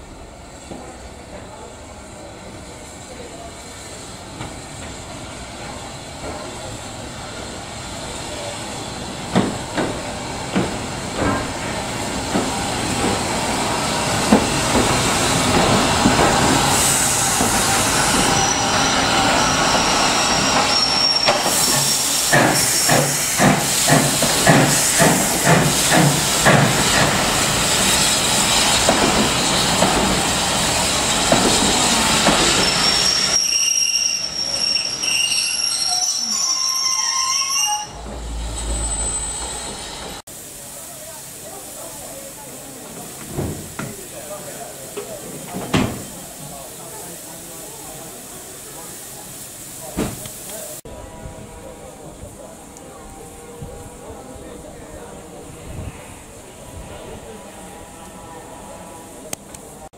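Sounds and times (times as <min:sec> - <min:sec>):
steam hiss: 0:02.6 - 0:33.5, 0:39.4 - 0:50.9
train wheels clicking over rail joints: 0:09.3 - 0:13.3, 0:14.2 - 0:18.3, 0:21.2 - 0:32.7
high wheel squeal: 0:16.5 - 0:26.0, 0:30.7 - 0:40.2.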